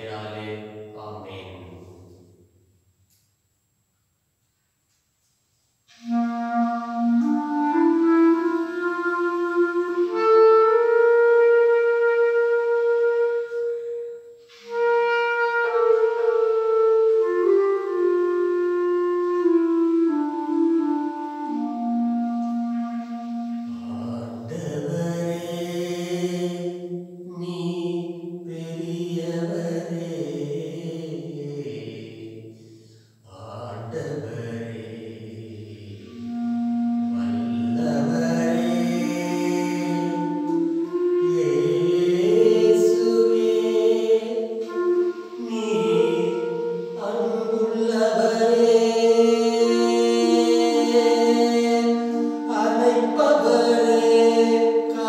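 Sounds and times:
man chanting: 0:00.0 - 0:02.2, 0:23.6 - 0:26.6, 0:27.2 - 0:32.6, 0:33.2 - 0:40.6, 0:41.2 - 0:55.0
clarinet solo melody: 0:05.9 - 0:24.4, 0:36.0 - 0:55.0.

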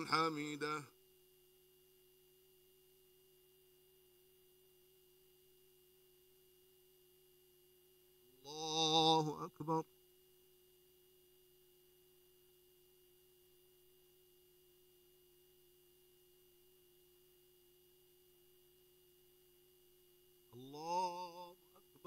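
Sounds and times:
faint steady tone: 0:00.0 - 0:22.0.

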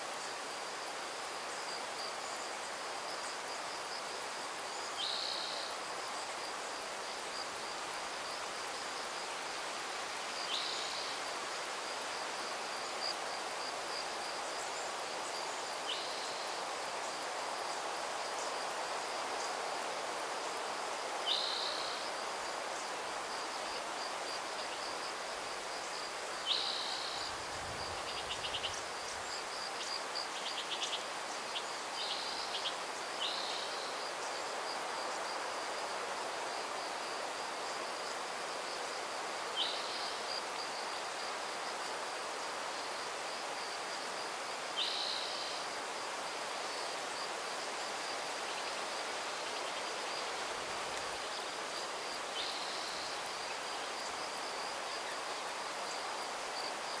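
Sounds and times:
steady breeze: 0:00.0 - 0:44.7.

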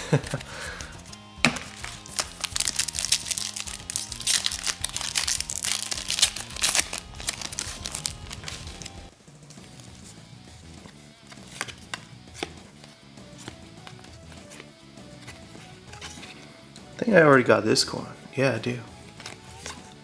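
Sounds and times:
background music: 0:00.0 - 0:20.0
wrapper crinkling: 0:01.6 - 0:09.9.

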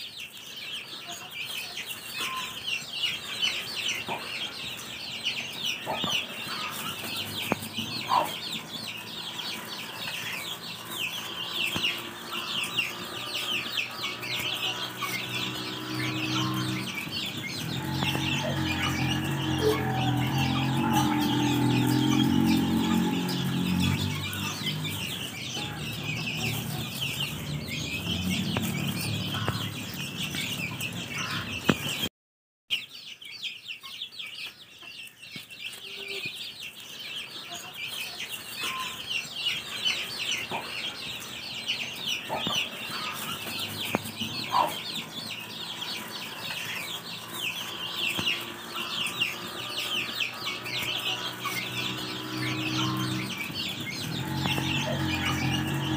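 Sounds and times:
chicks peeping: 0:00.0 - 0:32.1, 0:32.7 - 0:55.9
hen clucking: 0:05.6 - 0:32.0, 0:42.2 - 0:55.9.

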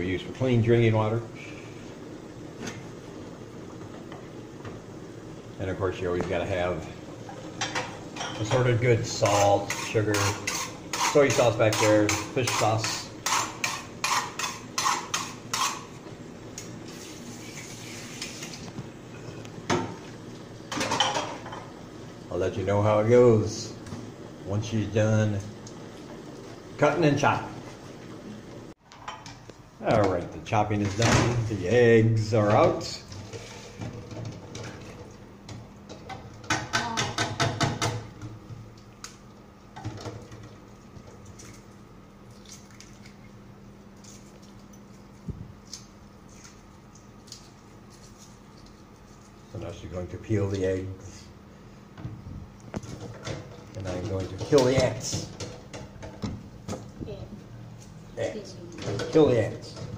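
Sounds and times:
dishes and utensils clattering: 0:07.3 - 0:15.9, 0:20.7 - 0:21.7
water sloshing in pot: 0:30.2 - 0:36.7, 0:37.3 - 0:49.6
eggs knocking against metal pot: 0:36.0 - 0:38.3.

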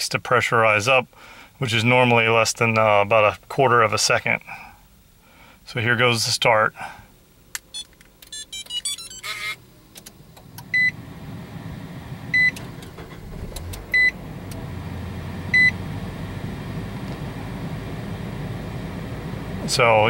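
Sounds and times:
car engine starting and idling: 0:07.2 - 0:20.0.

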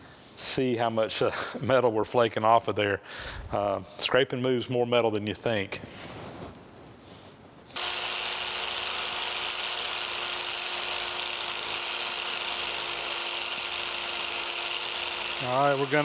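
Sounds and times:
power scraper cutting metal: 0:07.8 - 0:16.0.

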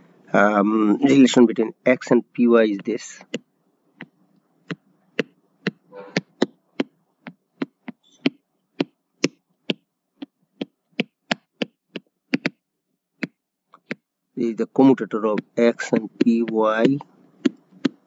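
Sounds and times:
stylus tapping on tablet screen: 0:02.8 - 0:12.6, 0:13.2 - 0:14.1, 0:14.8 - 0:18.0.

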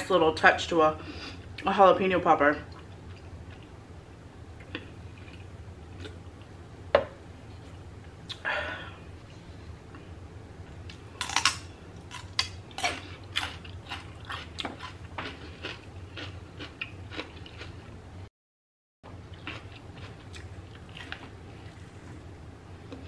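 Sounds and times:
celery crunching being chewed: 0:10.9 - 0:17.8, 0:19.3 - 0:22.0.

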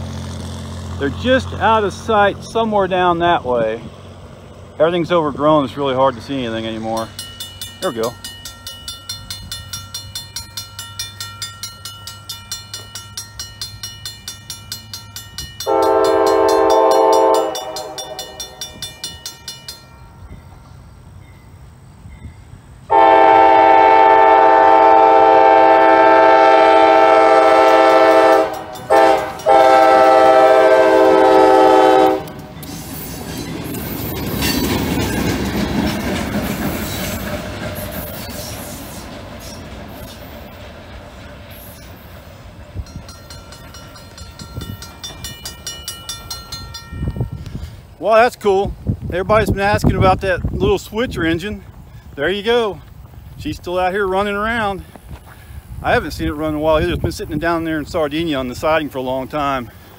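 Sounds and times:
train rumbling over crossing: 0:00.0 - 0:59.9
wheels clacking on rails: 0:00.0 - 0:59.9
crossing bell ringing: 0:05.8 - 0:24.4, 0:25.1 - 0:36.1, 0:41.5 - 0:48.0
locomotive air horn: 0:15.6 - 0:18.5, 0:22.9 - 0:32.5.

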